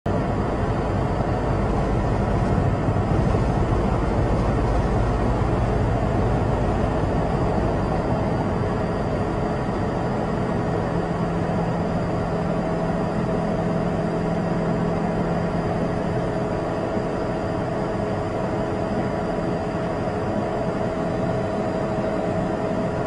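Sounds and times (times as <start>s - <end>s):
low rumble of traffic: 0.1s - 16.7s.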